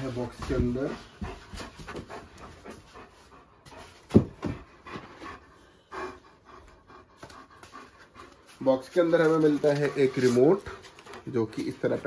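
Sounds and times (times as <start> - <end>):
dog panting: 0.0 - 12.0.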